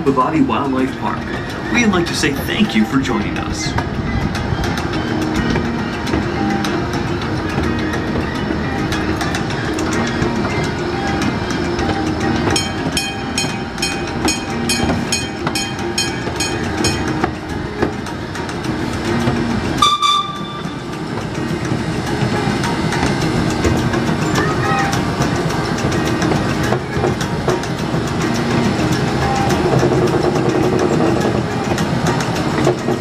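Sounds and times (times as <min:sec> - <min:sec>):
miniature train running on track: 0:00.0 - 0:33.0
bell ringing: 0:04.1 - 0:17.8, 0:19.7 - 0:23.4
short horn toot: 0:19.8 - 0:20.7.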